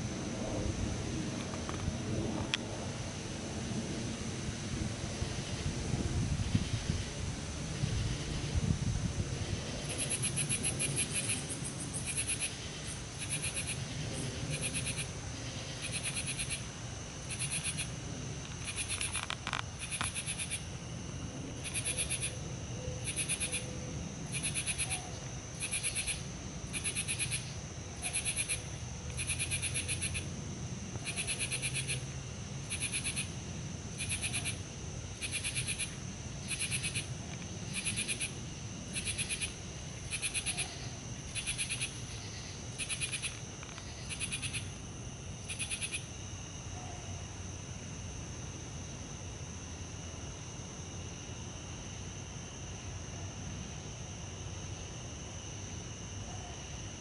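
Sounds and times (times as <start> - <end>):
low steady rumble: 0.0 - 53.9
rapidly pulsed high call: 19.8 - 20.8, 21.5 - 30.4, 31.0 - 32.1, 34.0 - 44.8, 45.4 - 47.4.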